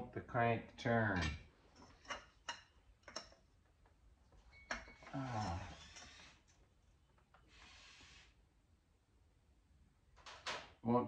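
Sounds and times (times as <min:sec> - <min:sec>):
person grunting: 0:05.1 - 0:05.8.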